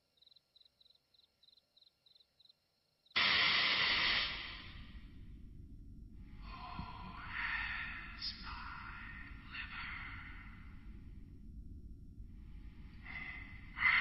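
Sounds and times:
cricket chirping: 0.0s - 14.0s
loud rush of hissing noise: 3.2s - 14.0s
low rumble: 4.0s - 14.0s.

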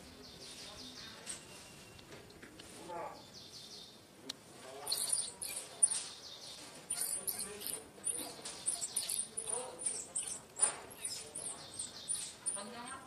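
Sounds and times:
infant monkey squealing: 6.9s - 12.7s.

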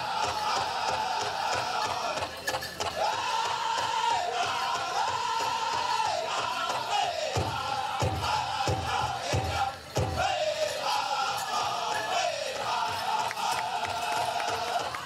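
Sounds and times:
high voices singing in unison: 0.0s - 15.0s.

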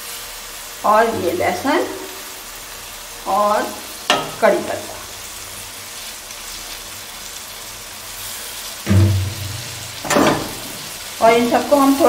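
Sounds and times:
spices sizzling in hot oil: 0.0s - 12.0s
low thump: 8.9s - 10.6s
sharp knock: 8.9s - 10.6s.

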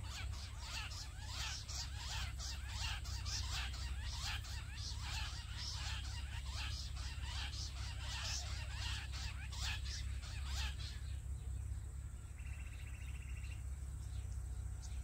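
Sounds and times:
fast pulsed bird trill: 0.0s - 15.0s
quail chirping: 0.0s - 15.0s.

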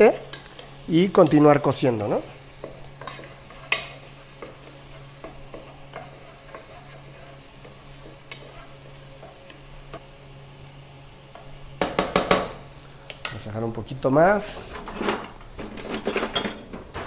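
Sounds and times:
onion sizzling in oil: 0.0s - 14.4s
wooden spoon knocking on pan: 11.8s - 12.6s.

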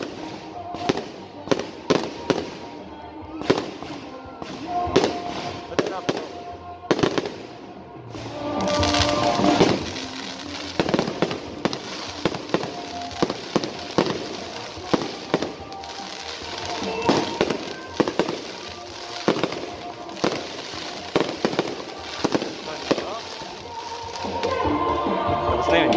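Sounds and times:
fireworks hissing: 0.0s - 2.8s, 7.0s - 24.7s
fireworks bangs and pops: 0.0s - 24.6s.

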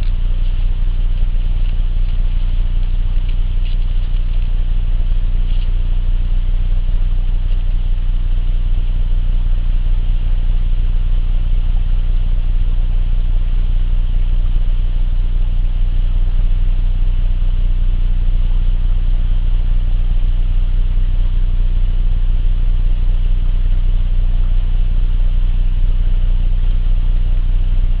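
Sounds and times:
engine humming: 0.0s - 12.2s.

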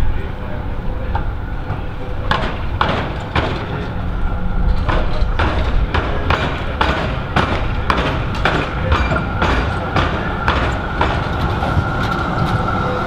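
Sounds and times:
tram running gear whine: 0.0s - 13.0s
sharp regular clacks: 4.8s - 11.5s.

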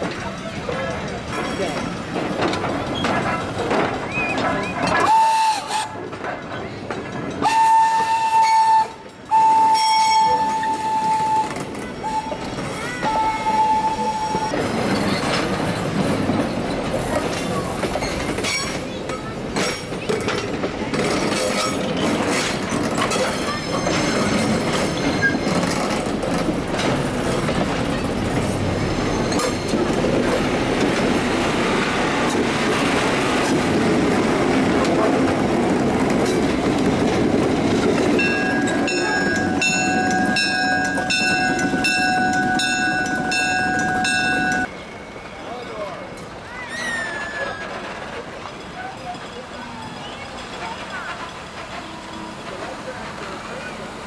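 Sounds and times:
train wheels clattering over rails: 0.0s - 44.7s, 46.2s - 54.0s
train whistle blasts: 5.0s - 5.9s, 7.4s - 12.4s.

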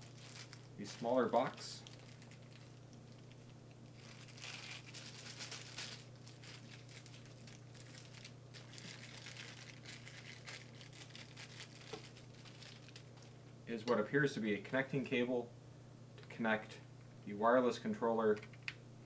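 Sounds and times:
plastic bag crinkling: 0.0s - 13.4s.

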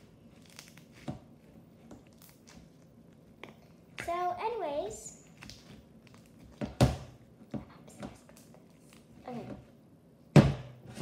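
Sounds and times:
tub knocking across table: 10.4s - 10.8s.

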